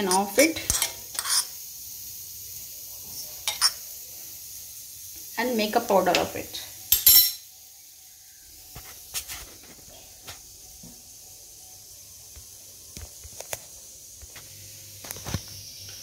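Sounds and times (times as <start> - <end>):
kitchen utensils and dishes clinking: 0.0 - 1.6, 3.1 - 3.8, 6.0 - 7.5
faint steady hiss: 0.0 - 16.0.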